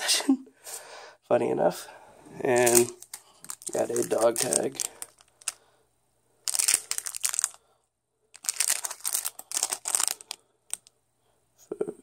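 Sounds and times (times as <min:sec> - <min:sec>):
plastic bag crinkling: 0:02.4 - 0:05.7, 0:06.4 - 0:07.6, 0:08.3 - 0:10.9.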